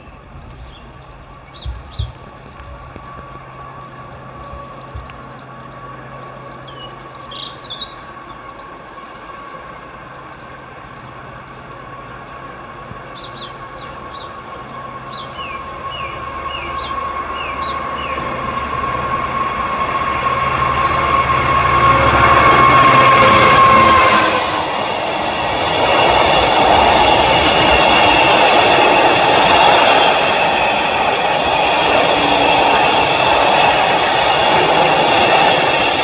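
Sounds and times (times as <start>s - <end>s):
birds chirping: 0.0s - 21.7s
train approaching: 0.0s - 36.0s.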